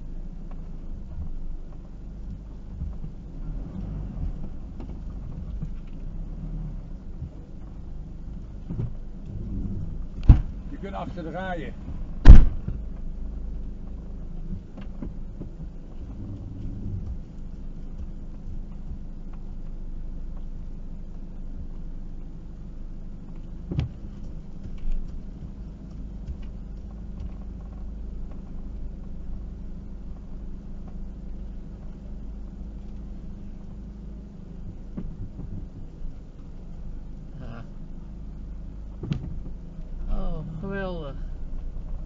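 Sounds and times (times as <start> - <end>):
engine idling: 0.0 - 42.0
short thump: 10.1 - 10.8, 12.2 - 12.9, 38.9 - 39.6.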